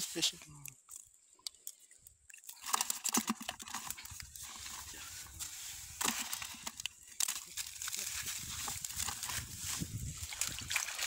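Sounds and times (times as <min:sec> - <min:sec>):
fish flapping and clicking: 0:00.6 - 0:04.8, 0:06.0 - 0:11.0
net rustling and scraping: 0:02.6 - 0:11.0.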